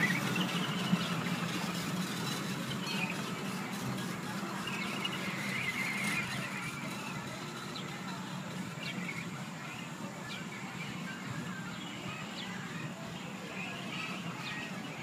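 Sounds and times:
high wavering squeals: 0.0 - 7.3
miniature train hum: 0.0 - 15.0.

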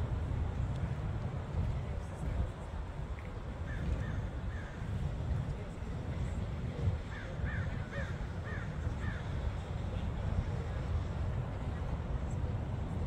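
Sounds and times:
steady low rumble: 0.0 - 13.0
crow cawing: 7.5 - 9.2.

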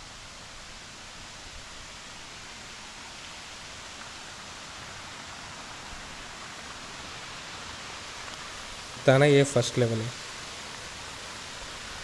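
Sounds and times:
waterfall rushing: 4.4 - 12.0.

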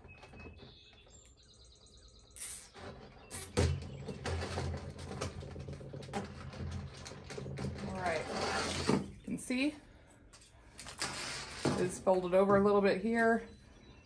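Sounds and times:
birds chirping faintly: 0.0 - 4.8, 12.0 - 14.0.

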